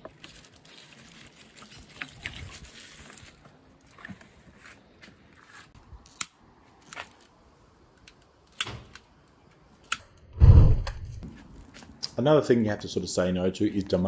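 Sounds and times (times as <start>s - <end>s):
low rumble: 10.3s - 11.2s.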